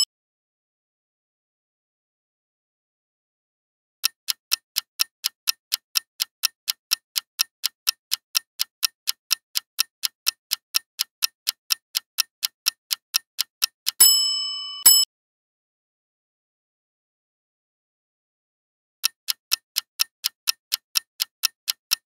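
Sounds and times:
clock ticking: 0:04.0 - 0:15.1, 0:19.0 - 0:22.0
bright ringing chime: 0:14.1 - 0:15.1.

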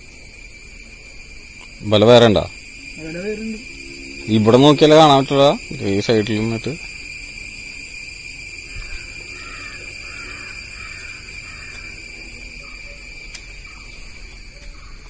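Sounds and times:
high-pitched insect drone: 0:00.0 - 0:15.0
faint distant bird calls: 0:00.7 - 0:15.0.

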